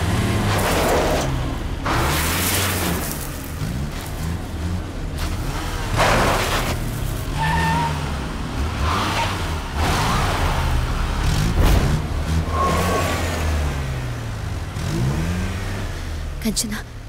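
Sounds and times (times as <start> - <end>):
car engines running: 0.0 - 17.0
tyres skidding: 0.0 - 17.0
high tyre squeal: 6.0 - 8.2, 8.8 - 10.7, 12.3 - 14.0.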